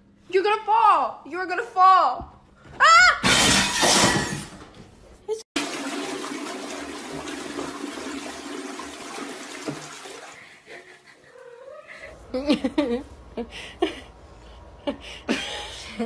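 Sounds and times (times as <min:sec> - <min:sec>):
toilet flushing: 0:05.6 - 0:11.0.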